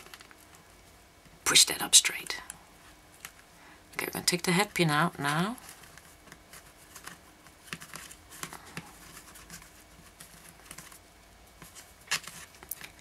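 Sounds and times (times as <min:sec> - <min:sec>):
fingers handling cord: 0:00.0 - 0:00.6, 0:02.4 - 0:03.5, 0:04.7 - 0:13.0.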